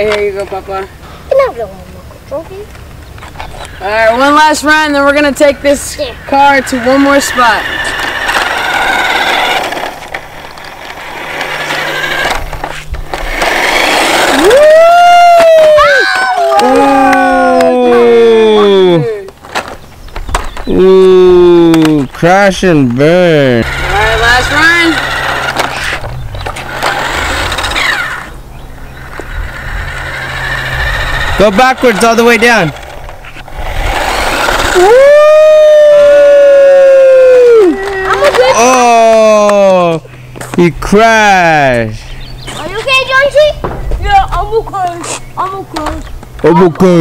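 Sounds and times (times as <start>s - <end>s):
tyres rolling on concrete: 0.0s - 47.0s
toy car electric motor whirring: 3.8s - 21.9s, 23.0s - 39.4s.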